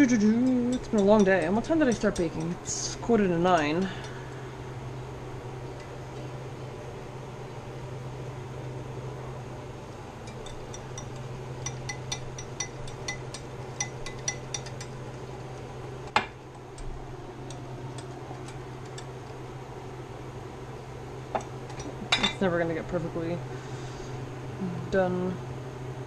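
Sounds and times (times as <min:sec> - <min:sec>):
steady low hum: 0:00.0 - 0:26.0
metal whisk clinking against bowl: 0:00.4 - 0:04.2, 0:10.3 - 0:15.0.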